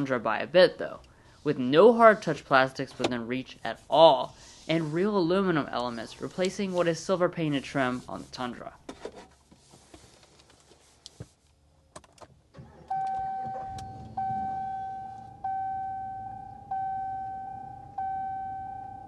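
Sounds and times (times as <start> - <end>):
electronic warning chime: 12.9 - 19.0.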